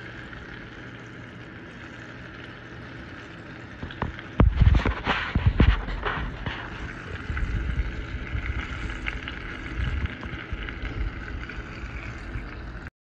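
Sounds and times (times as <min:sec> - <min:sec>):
food deep-frying in hot oil: 0:00.0 - 0:12.9
low rumble: 0:04.4 - 0:12.9.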